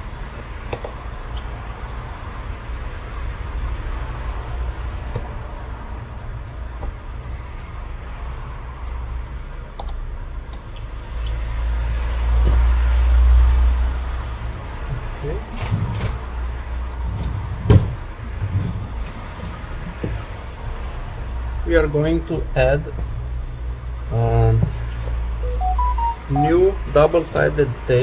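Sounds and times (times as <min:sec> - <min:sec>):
small tools clicking and tapping: 0:05.9 - 0:07.9, 0:08.8 - 0:11.4.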